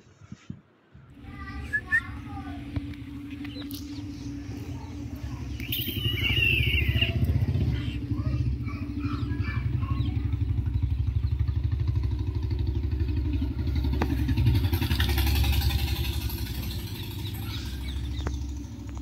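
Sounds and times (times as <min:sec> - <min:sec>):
motorcycle engine running: 0:01.1 - 0:19.0.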